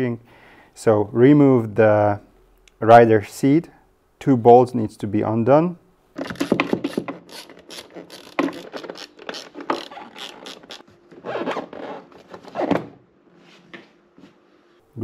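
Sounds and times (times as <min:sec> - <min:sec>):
ratchet wrench clicking: 0:06.4 - 0:10.8.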